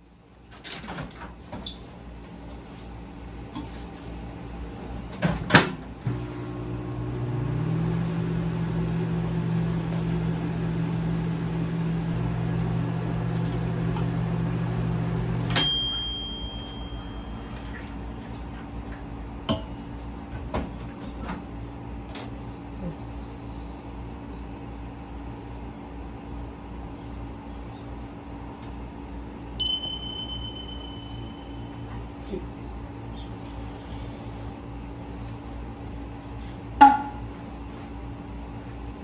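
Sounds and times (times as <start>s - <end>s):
microwave humming: 0.1s - 33.4s
microwave beep: 15.3s - 17.9s, 29.6s - 32.0s.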